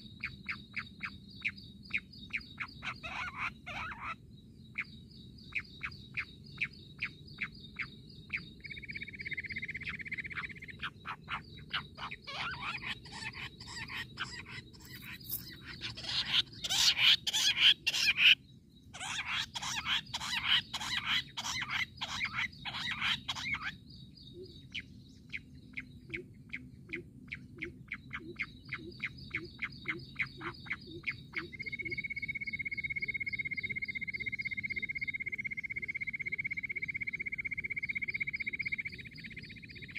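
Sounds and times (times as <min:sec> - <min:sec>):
quail calling: 0:02.6 - 0:04.2, 0:09.8 - 0:18.4, 0:19.0 - 0:23.8.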